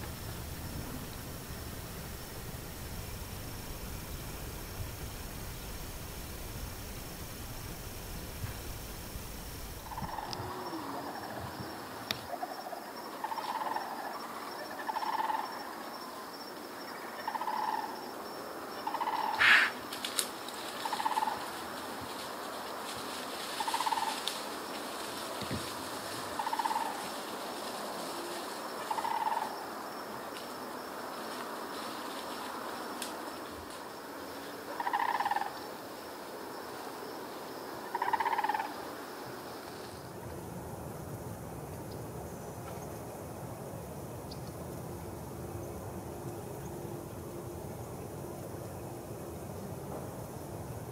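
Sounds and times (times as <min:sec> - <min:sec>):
outdoor background hiss: 0:00.0 - 0:50.9
animal rattling call: 0:00.1 - 0:11.4, 0:18.8 - 0:29.6, 0:34.7 - 0:35.5, 0:37.9 - 0:38.7
higher-pitched animal call: 0:09.8 - 0:11.5, 0:18.8 - 0:19.8, 0:37.9 - 0:38.7
pulsed animal calls: 0:09.8 - 0:14.0.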